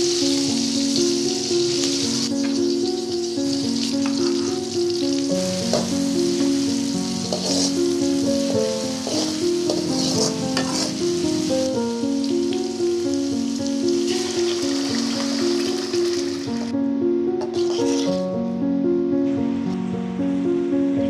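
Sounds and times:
hot oil sizzling in a pan: 0.0s - 16.8s, 17.4s - 18.2s
music with slow held notes: 0.0s - 21.0s
metal ladle scraping a pan: 4.0s - 4.7s, 5.7s - 11.6s, 14.0s - 16.7s, 17.4s - 18.2s.

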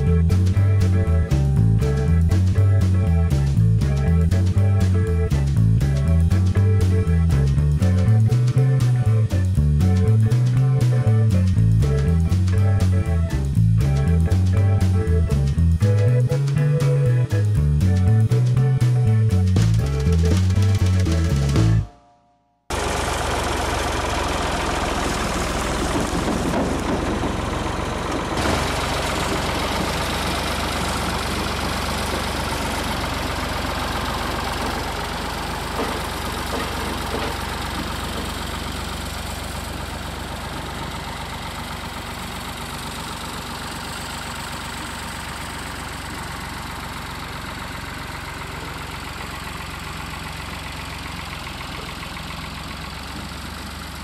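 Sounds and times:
pickup truck engine running: 0.0s - 21.9s, 22.7s - 54.0s.

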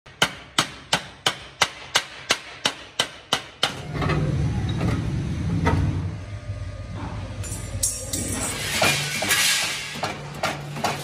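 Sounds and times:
steady low hum: 3.7s - 9.3s.

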